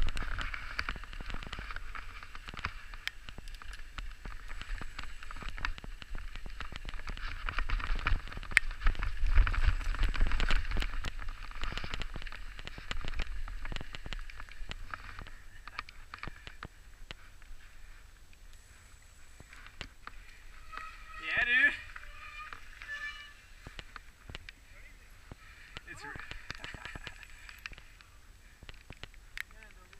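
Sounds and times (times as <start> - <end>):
wind rumble on microphone: 0.0 - 17.2
crackling of grit and stones: 0.0 - 29.9
tyre hiss on damp soil: 11.4 - 29.9.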